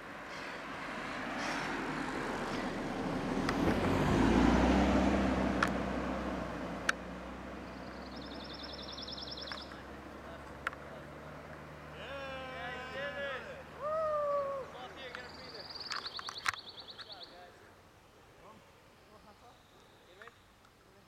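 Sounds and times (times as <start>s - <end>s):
car driving past: 0.0s - 15.4s.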